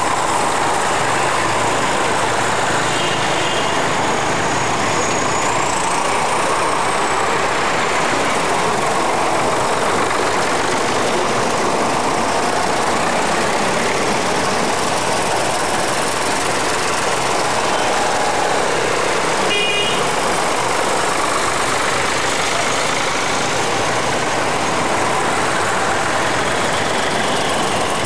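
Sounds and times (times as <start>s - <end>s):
tractor engines driving past: 0.0s - 28.0s.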